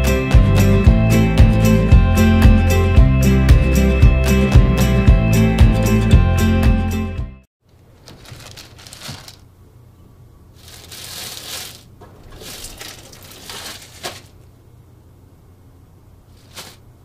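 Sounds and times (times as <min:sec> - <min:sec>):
plastic bag crinkling and rustling: 0:07.7 - 0:09.5, 0:10.6 - 0:14.5, 0:16.3 - 0:16.8.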